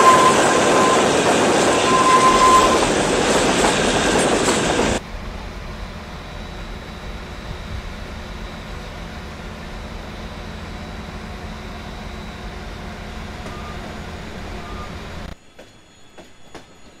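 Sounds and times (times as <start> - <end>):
diesel train engine rumble: 0.0 - 17.0
short beeps: 13.2 - 15.3.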